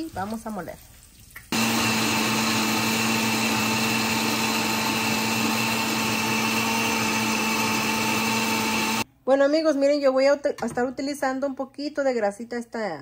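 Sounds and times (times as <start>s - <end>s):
blender whirring: 1.5s - 9.0s.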